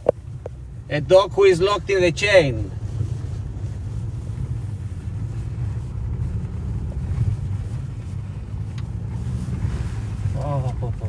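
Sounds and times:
car engine rumble: 0:00.0 - 0:11.0.

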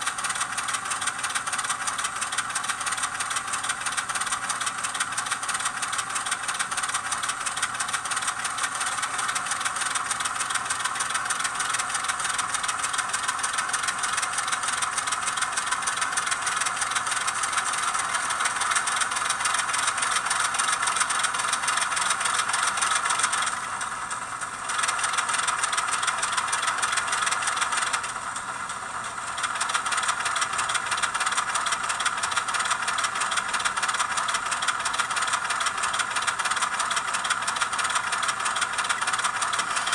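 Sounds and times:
thin diesel engine sound from tiny speaker: 0:00.0 - 0:39.9.

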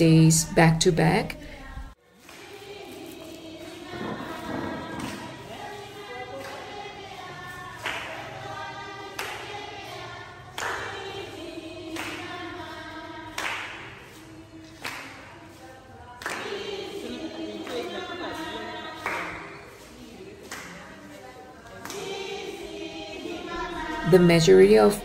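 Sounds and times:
women singing together: 0:00.0 - 0:25.0
clapping in time: 0:13.3 - 0:14.0.

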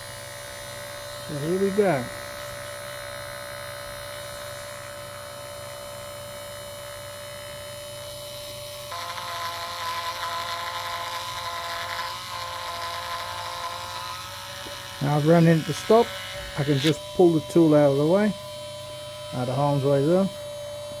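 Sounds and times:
cutting tool on spinning copper: 0:00.0 - 0:21.0
small electric motor whining: 0:00.0 - 0:21.0.

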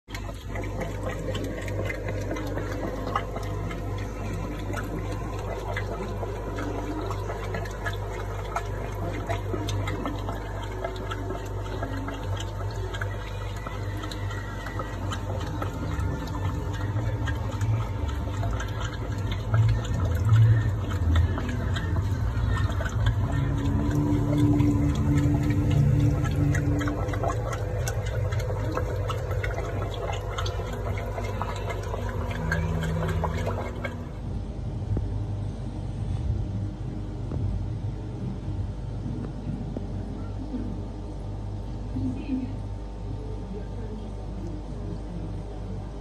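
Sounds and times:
water pouring into a tank: 0:00.0 - 0:36.6
low hum: 0:00.0 - 0:46.0.

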